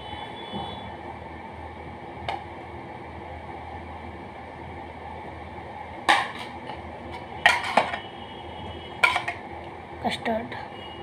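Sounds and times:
low background hum and hiss: 0:00.0 - 0:11.0
metal pot clattering on countertop: 0:06.1 - 0:06.5, 0:07.4 - 0:08.0, 0:09.0 - 0:09.4.

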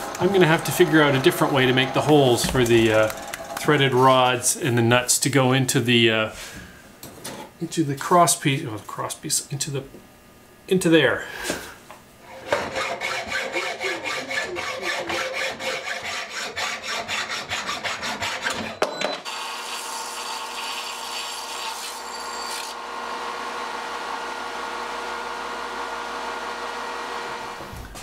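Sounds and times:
belt sander running: 0:00.0 - 0:04.0, 0:22.2 - 0:27.7
hand saw strokes: 0:12.3 - 0:18.7.

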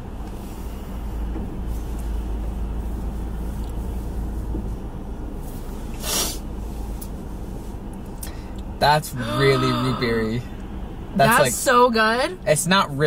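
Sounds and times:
faint steady hum: 0:00.0 - 0:12.6
car idling inside cabin: 0:00.0 - 0:13.0
short breathy hiss: 0:05.9 - 0:06.5.

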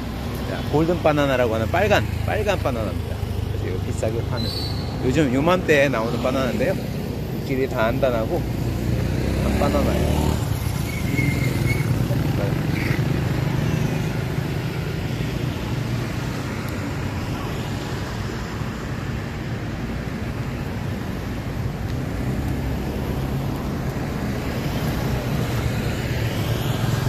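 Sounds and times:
road traffic hum: 0:00.0 - 0:27.0.

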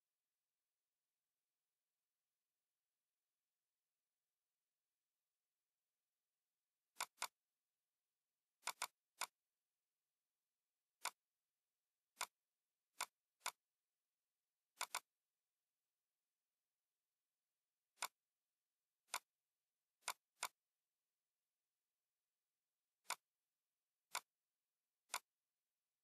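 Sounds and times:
computer mouse clicks: 0:06.9 - 0:07.4, 0:08.6 - 0:09.4, 0:11.0 - 0:11.3, 0:12.1 - 0:13.6, 0:14.7 - 0:15.2, 0:18.0 - 0:18.2, 0:19.0 - 0:19.4, 0:20.0 - 0:20.6, 0:23.0 - 0:23.3, 0:24.1 - 0:24.4, 0:25.0 - 0:25.4.

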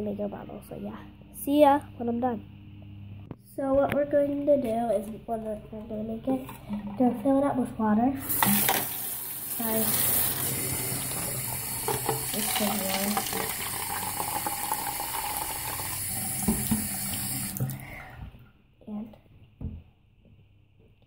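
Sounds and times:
water running from tap into bottle: 0:08.2 - 0:17.8.

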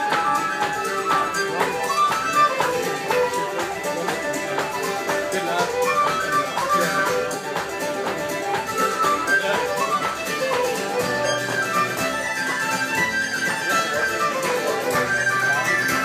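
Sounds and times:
fiddle and tin whistle dance tune: 0:00.0 - 0:16.0.

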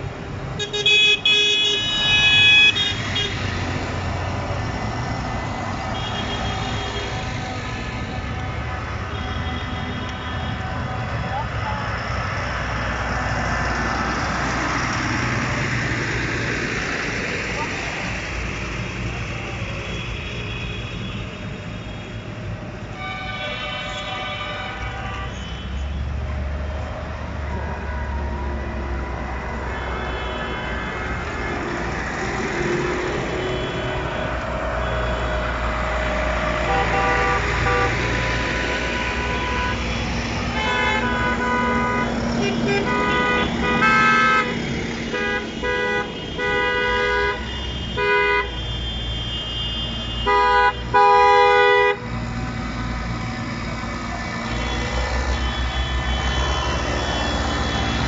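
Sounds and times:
vehicle horns honking: 0:00.6 - 0:03.4, 0:05.8 - 0:10.6, 0:22.9 - 0:26.0, 0:29.6 - 0:31.1, 0:33.3 - 0:35.6, 0:36.6 - 0:38.2, 0:38.8 - 0:52.2, 0:54.3 - 0:58.0
tractor engines driving past: 0:01.4 - 0:20.2, 0:26.1 - 0:46.4, 0:49.8 - 0:58.0.

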